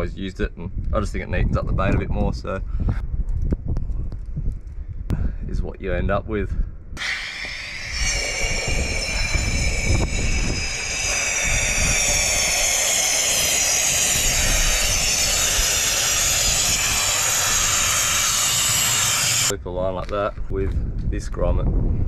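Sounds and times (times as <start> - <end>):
compressed gas hissing: 7.0 - 19.5
faint high whistle: 7.0 - 19.5.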